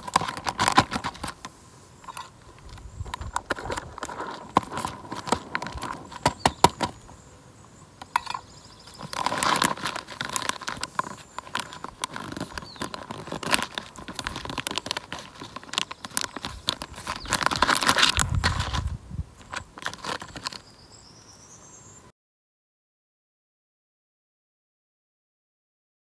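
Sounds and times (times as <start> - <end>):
foil pouch crinkling and tearing: 0.0 - 1.5, 2.1 - 6.9, 9.0 - 20.6.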